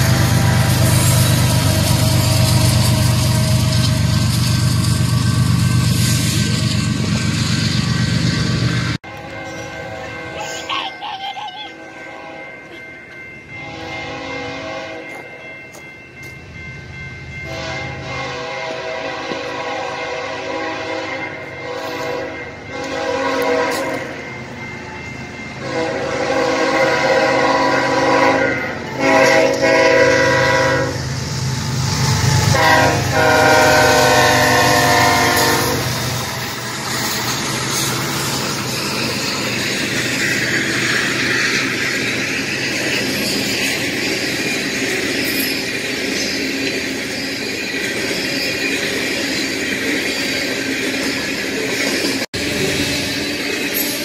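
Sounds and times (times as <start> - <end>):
freight cars rumbling on rails: 0.0 - 54.0
locomotive horn blasts: 9.0 - 10.4, 13.6 - 15.1, 17.4 - 24.2, 25.6 - 31.1, 32.4 - 35.9.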